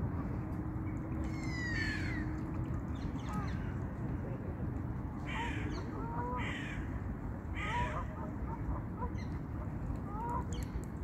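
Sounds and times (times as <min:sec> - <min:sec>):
harsh caw-like bird calls: 0:06.4 - 0:06.9.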